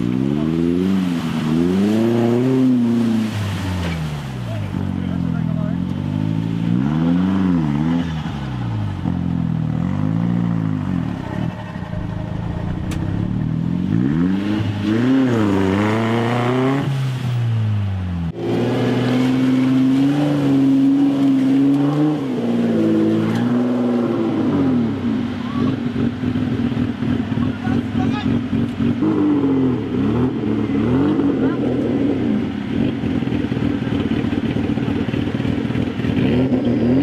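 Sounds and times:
wheels churning through mud: 0.0s - 8.8s
off-road engine revving: 0.0s - 37.0s.

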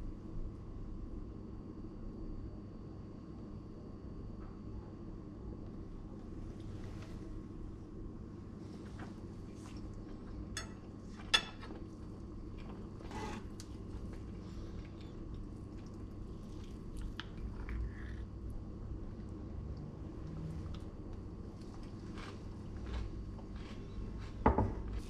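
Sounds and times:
steady low hum: 0.0s - 25.0s
cutlery clinking on dishes: 10.6s - 11.7s.

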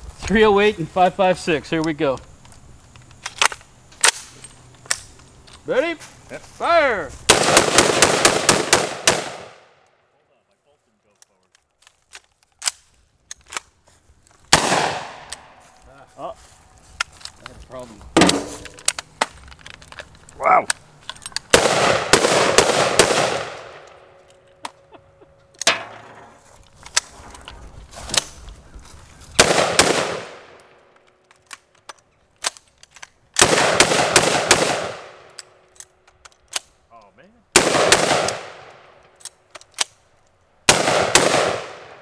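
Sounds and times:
gunshots with long echo: 7.3s - 9.8s, 14.5s - 15.3s, 21.5s - 23.9s, 29.4s - 30.6s, 33.4s - 35.3s, 37.5s - 38.8s, 40.7s - 42.0s.

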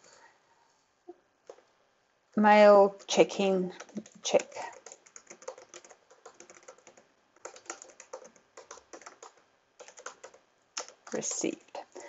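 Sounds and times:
computer keyboard typing: 3.8s - 11.7s.

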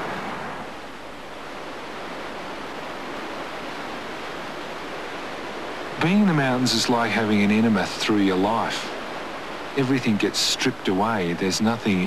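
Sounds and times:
river rushing: 0.0s - 12.0s.

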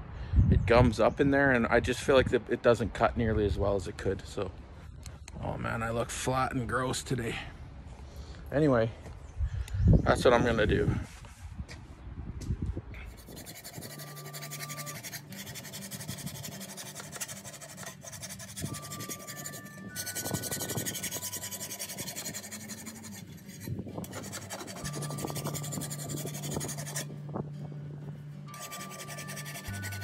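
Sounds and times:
file rasping on steel blade: 13.0s - 27.1s, 28.5s - 30.0s.

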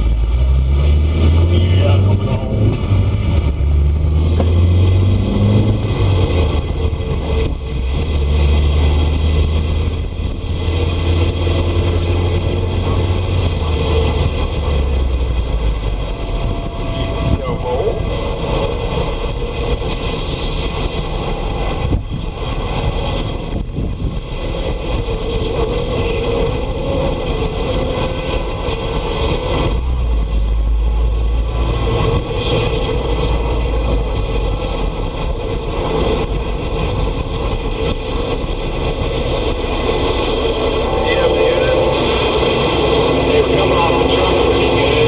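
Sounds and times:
low rumble: 0.0s - 45.0s
radio static: 40.4s - 45.0s.

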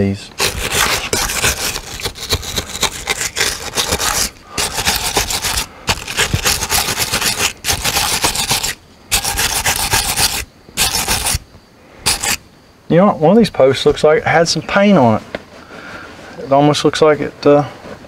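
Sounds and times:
wire brush scrubbing metal: 0.4s - 11.4s, 12.0s - 12.4s.

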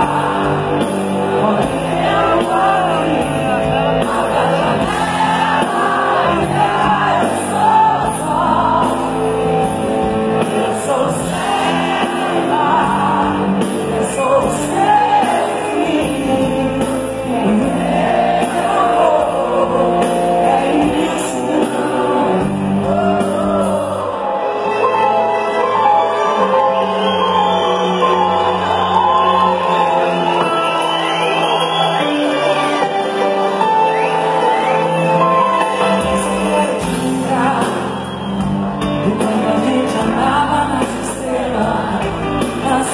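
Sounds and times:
live band playing: 0.0s - 42.9s
crowd shouting: 1.9s - 13.7s, 26.0s - 35.2s
woman singing into a microphone: 10.6s - 23.8s, 39.0s - 42.9s.

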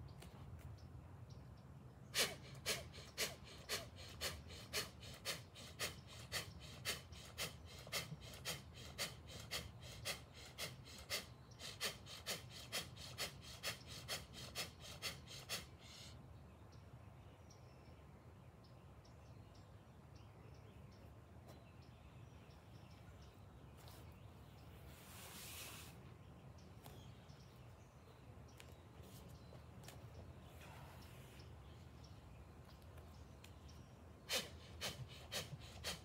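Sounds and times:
rapid forceful breaths: 2.2s - 16.2s, 34.3s - 36.0s.

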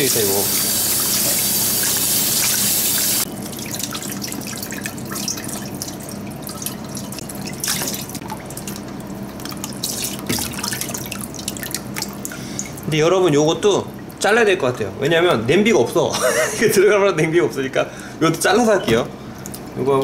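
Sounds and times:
tap water running into pot: 0.0s - 12.8s
water dripping: 0.2s - 14.3s, 18.6s - 20.0s.

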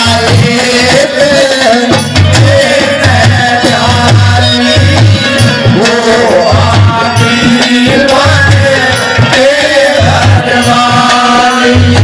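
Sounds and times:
hand drum rhythm: 0.0s - 12.0s.

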